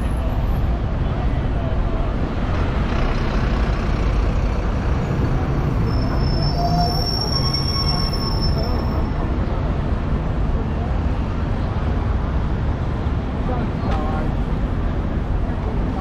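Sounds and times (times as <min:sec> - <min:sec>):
city traffic rumble: 0:00.0 - 0:16.0
high-pitched brake squeal: 0:05.6 - 0:09.2.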